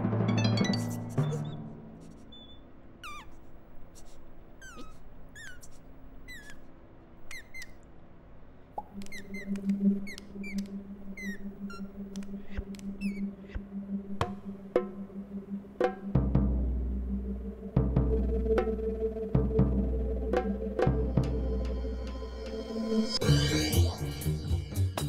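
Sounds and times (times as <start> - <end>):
high squeaks gliding down: 0.7 - 7.8, 8.8 - 13.6
low pulsing hum: 8.9 - 24.8.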